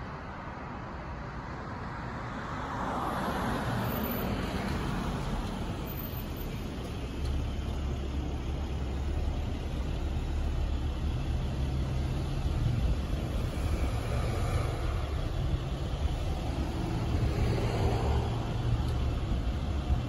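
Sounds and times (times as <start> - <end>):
car passing with tyre hiss: 0.0 - 7.1, 8.2 - 20.0
low engine rumble: 4.4 - 20.0.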